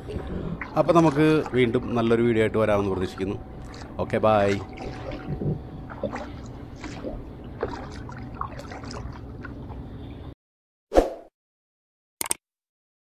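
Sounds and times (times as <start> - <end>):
water sloshing around canoe: 0.6 - 9.9
paddle splashes: 3.6 - 9.6.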